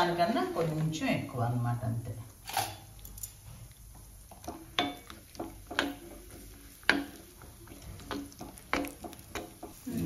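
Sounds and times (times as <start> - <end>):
metal spoon scraping wok: 2.4 - 2.9.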